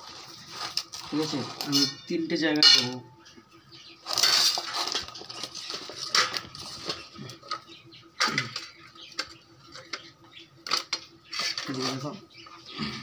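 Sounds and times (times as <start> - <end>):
metal plates and pot clinking: 0.9 - 3.1, 4.0 - 10.0.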